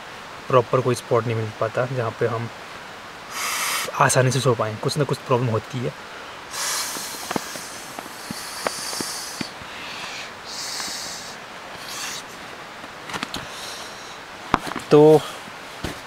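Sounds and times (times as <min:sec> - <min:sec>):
person blowing into pillow valve: 0:03.3 - 0:03.9, 0:06.5 - 0:12.3.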